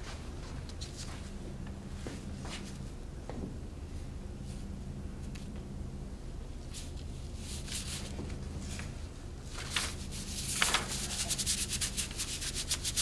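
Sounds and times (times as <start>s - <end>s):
low room hum: 0.0s - 13.0s
brush scrubbing on paper: 10.0s - 13.0s.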